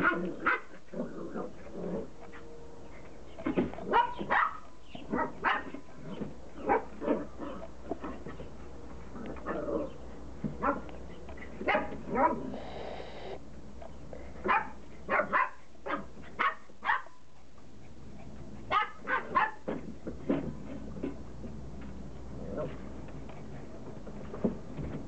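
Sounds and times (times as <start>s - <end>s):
puppies barking: 3.8s - 5.8s, 18.7s - 19.7s.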